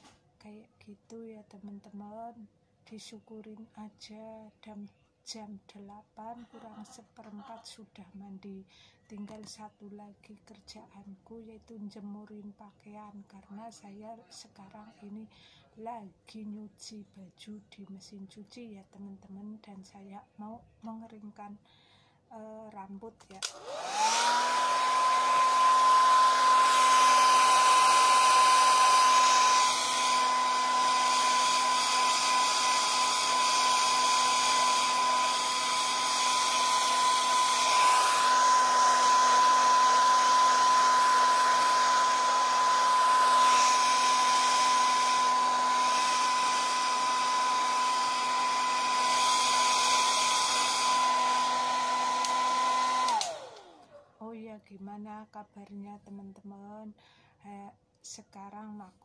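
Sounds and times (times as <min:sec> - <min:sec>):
hair dryer running: 0:23.3 - 0:54.0.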